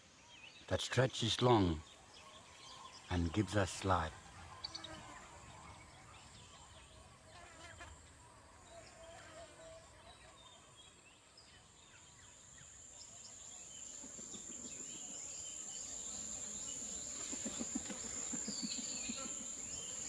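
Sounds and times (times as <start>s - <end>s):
high insect drone: 12.0s - 20.0s.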